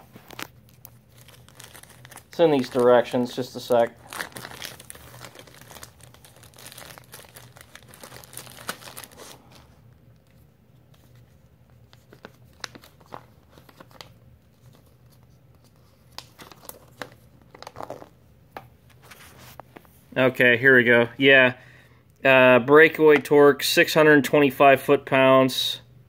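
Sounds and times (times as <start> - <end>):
paper rustling and crinkling: 0.0 - 18.1, 18.9 - 20.0.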